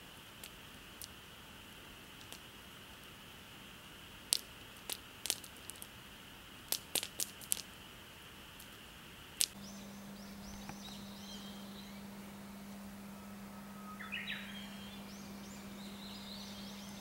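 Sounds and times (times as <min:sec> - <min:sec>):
campfire crackling: 0:00.0 - 0:17.0
low steady hum: 0:00.0 - 0:17.0
steady high hum: 0:07.7 - 0:17.0
birds singing: 0:09.6 - 0:17.0.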